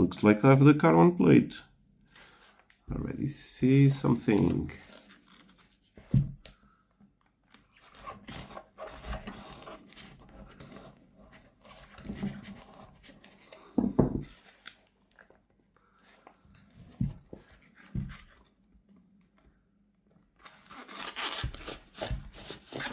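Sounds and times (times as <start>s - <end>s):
thump: 6.0s - 6.4s
knife cutting into foam: 20.7s - 22.9s.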